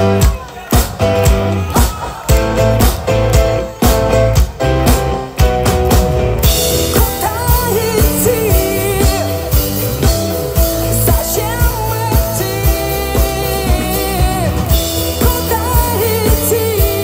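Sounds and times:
live rock band playing: 0.0 - 17.0
woman singing: 6.9 - 9.7, 10.8 - 17.0.

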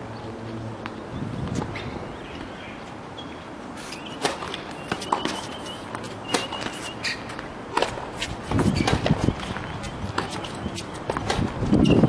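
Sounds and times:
shoe squeaks: 3.8 - 7.4, 8.2 - 12.0
tennis ball struck by racket: 4.1 - 12.0
tennis ball bouncing on court: 4.2 - 12.0.

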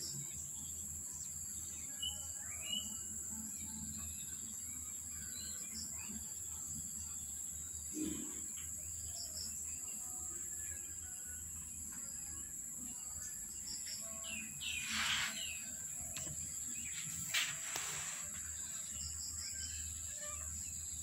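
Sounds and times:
small birds chirping: 0.0 - 21.0
hissing rustle: 14.7 - 16.3, 16.9 - 18.7.

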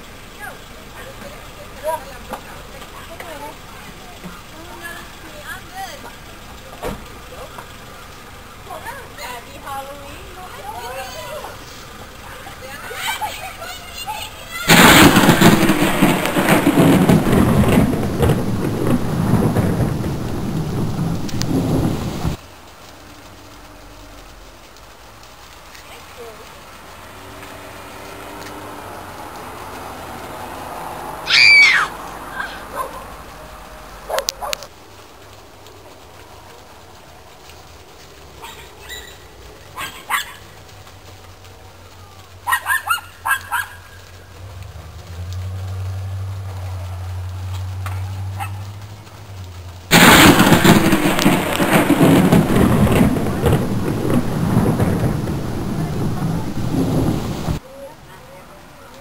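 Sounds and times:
rough rumbling and rushing noise: 0.0 - 38.5, 44.0 - 59.0
dog barking: 32.4 - 33.1, 34.1 - 34.7, 39.8 - 40.4, 42.4 - 44.0, 48.4 - 48.6.

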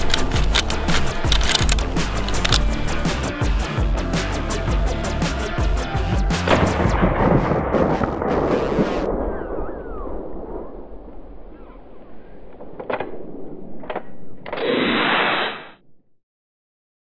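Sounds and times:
sharp clicks: 0.0 - 3.0
music: 0.0 - 9.1.

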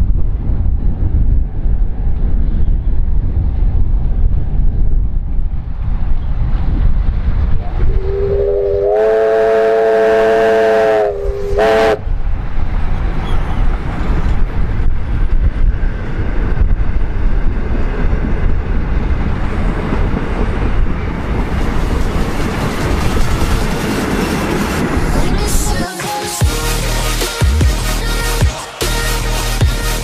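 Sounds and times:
steam locomotive whistle: 7.6 - 12.0
train carriages rumbling and clattering: 10.2 - 25.8.

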